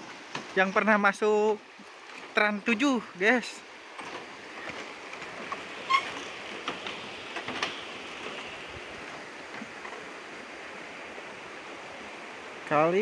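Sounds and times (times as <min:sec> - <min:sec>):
footsteps on bamboo slats: 0:00.0 - 0:01.0, 0:01.6 - 0:02.8, 0:03.7 - 0:10.2
river flowing over stones: 0:00.0 - 0:13.0.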